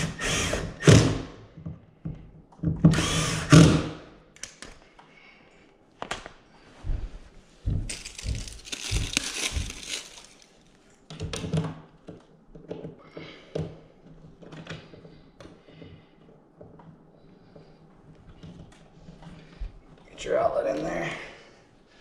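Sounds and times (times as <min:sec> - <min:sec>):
cordless driver whirring: 0:00.0 - 0:01.2, 0:02.8 - 0:04.0
crinkling and rustling: 0:07.2 - 0:13.0.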